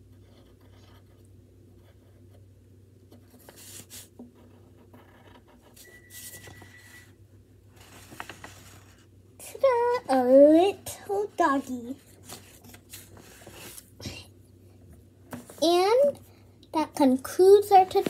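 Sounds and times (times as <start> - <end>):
pencil scratching on paper: 0.0 - 1.2, 3.1 - 6.4
paper clicks and rustles: 7.8 - 9.0.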